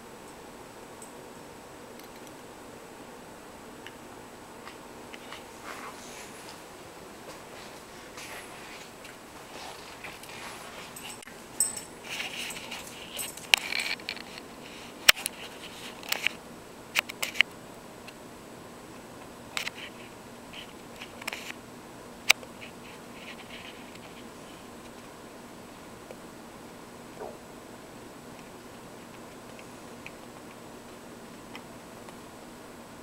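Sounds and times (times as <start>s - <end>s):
dogs scuffling: 5.1s - 16.3s.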